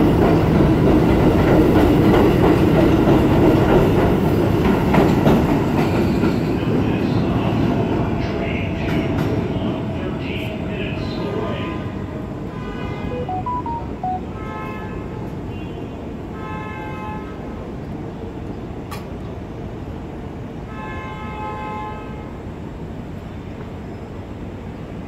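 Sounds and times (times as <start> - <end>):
train wheels rumbling on rails: 0.0 - 12.4.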